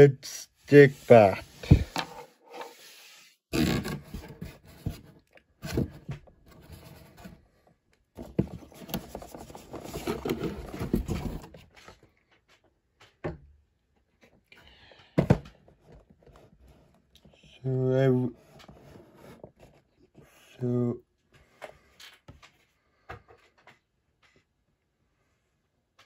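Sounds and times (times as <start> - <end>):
cardboard scraping and rubbing: 0.8 - 7.4, 8.2 - 11.7.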